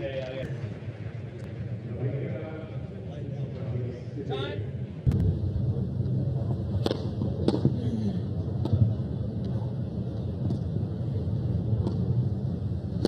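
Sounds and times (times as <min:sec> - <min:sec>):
low background rumble: 0:00.0 - 0:13.0.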